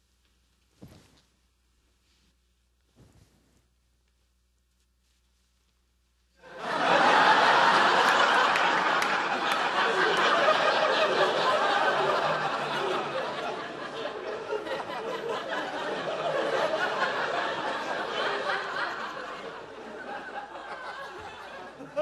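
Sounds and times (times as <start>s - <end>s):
studio audience laughing: 6.4s - 22.0s.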